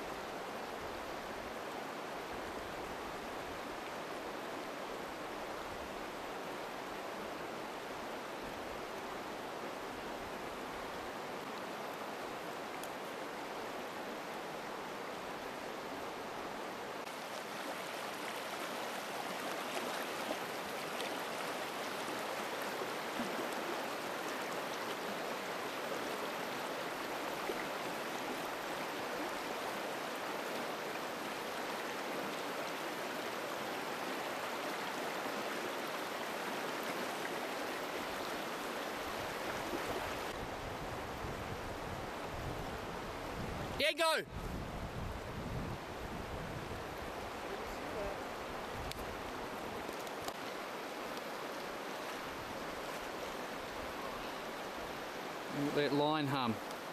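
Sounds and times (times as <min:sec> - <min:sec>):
river rushing over stones: 0:00.0 - 0:44.2, 0:44.8 - 0:56.9.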